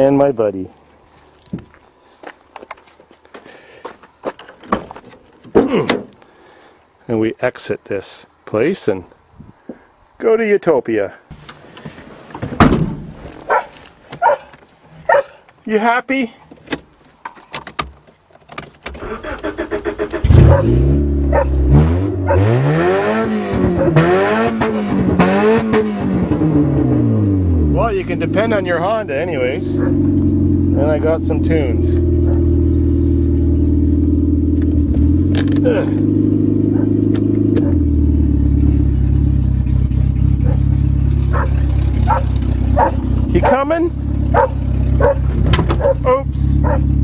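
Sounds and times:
car engine cranking: 17.4 - 47.0
car engine revving: 19.1 - 47.0.

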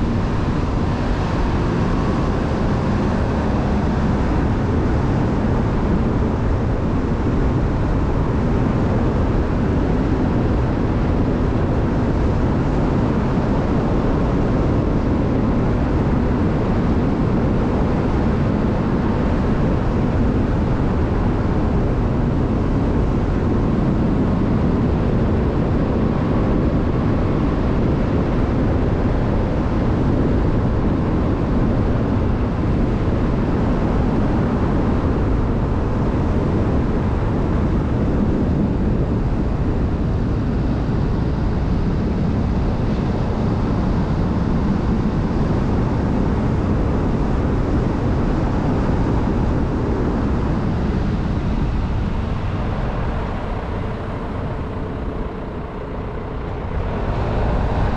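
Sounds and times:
car driving rumble: 49.9 - 57.9.

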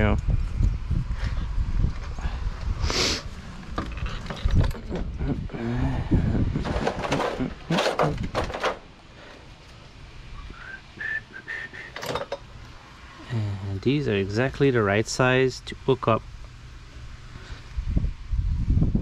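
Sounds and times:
small parts clicking and knocking: 12.0 - 12.5.

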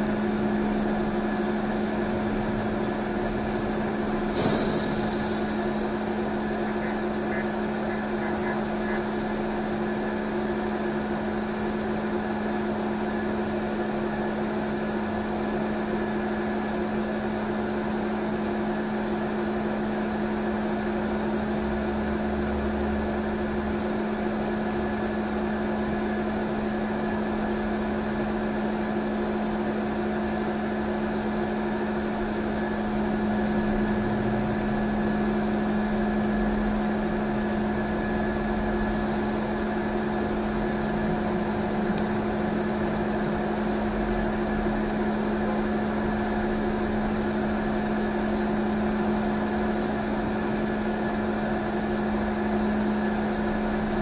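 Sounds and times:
air release hiss: 4.3 - 6.0.

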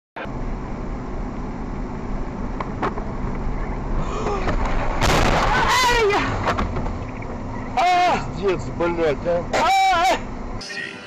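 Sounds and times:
car engine and tyre noise: 0.2 - 10.6
loud rushing noise: 3.8 - 7.5.

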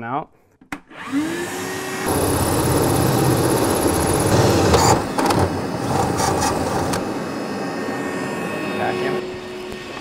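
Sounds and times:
vacuum running: 0.8 - 10.0
drill cutting sheet metal: 0.9 - 7.3
grinding bursts: 2.0 - 7.0.

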